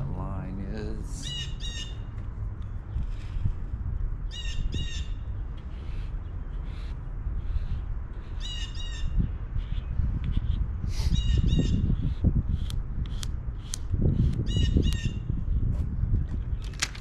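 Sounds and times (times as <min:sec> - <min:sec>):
steady low rumble: 0:00.0 - 0:17.0
bird giving harsh crow-like calls: 0:01.2 - 0:02.1, 0:04.2 - 0:09.9.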